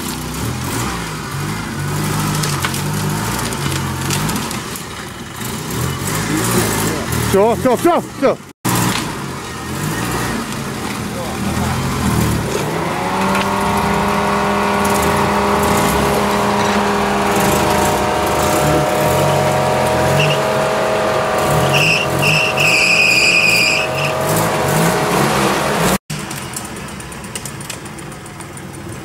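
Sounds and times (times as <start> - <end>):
off-road engine revving hard: 0.0 - 26.2
high-pitched squeals: 12.6 - 25.9.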